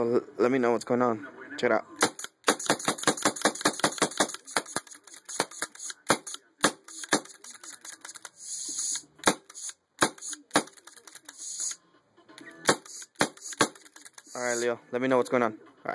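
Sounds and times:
paintball marker firing clicks: 2.0s - 11.8s, 12.6s - 14.7s
air hiss: 8.3s - 11.8s.

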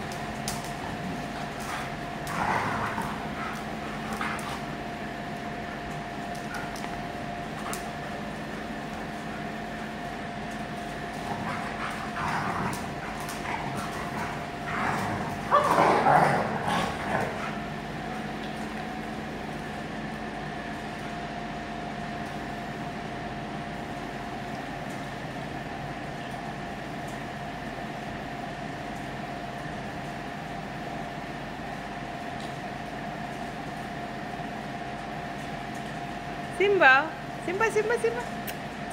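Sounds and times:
steady hum: 0.0s - 38.9s
dogs vocalising while playing: 0.6s - 5.0s, 10.8s - 18.4s.

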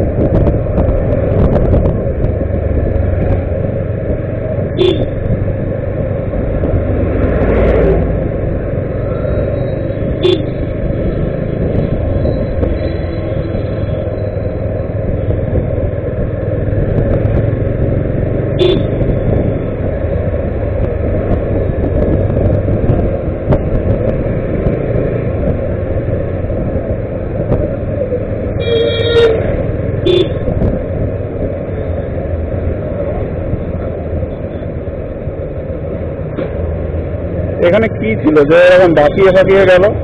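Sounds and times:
road and wind rumble: 0.0s - 40.0s
vehicle horns honking: 4.8s - 5.2s, 10.2s - 10.6s, 18.6s - 19.0s, 28.6s - 30.4s.

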